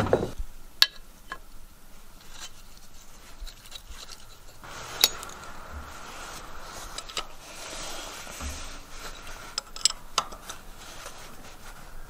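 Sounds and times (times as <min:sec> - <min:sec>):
wrench scraping metal: 0:02.2 - 0:11.6.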